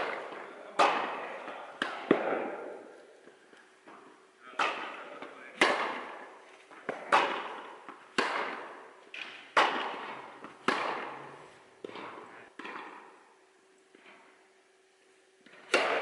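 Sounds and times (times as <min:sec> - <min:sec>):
tennis ball pops echoing: 0:04.6 - 0:06.2, 0:06.8 - 0:13.1.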